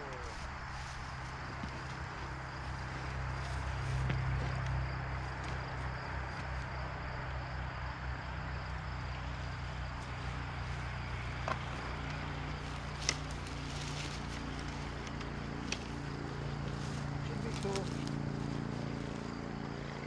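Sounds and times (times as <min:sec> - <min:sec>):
dirt bike engine idling: 0:08.2 - 0:20.0.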